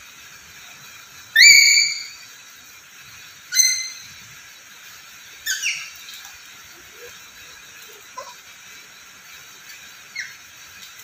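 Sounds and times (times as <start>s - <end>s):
parrot whistled calls: 1.3s - 2.2s, 3.5s - 4.1s, 5.4s - 6.0s, 10.1s - 10.4s.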